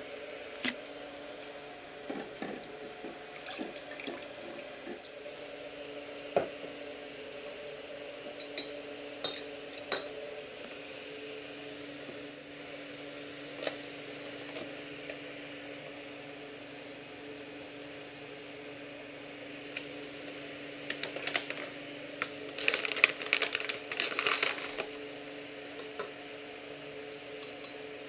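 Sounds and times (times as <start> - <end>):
steady low hum: 0.0 - 28.0
sugar rattling through funnel: 22.5 - 24.9.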